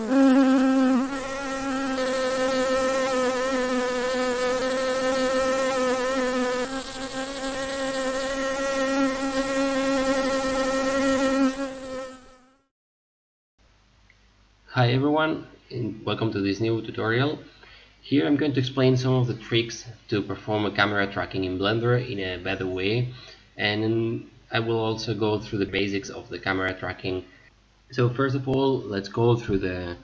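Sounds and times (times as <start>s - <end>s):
bee wings buzzing: 0.0s - 12.6s.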